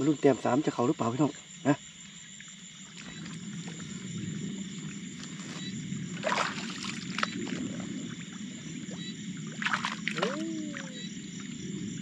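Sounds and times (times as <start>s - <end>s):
insects chirring: 0.0s - 12.0s
water sloshing from wading: 2.4s - 12.0s
water splash: 5.2s - 11.1s.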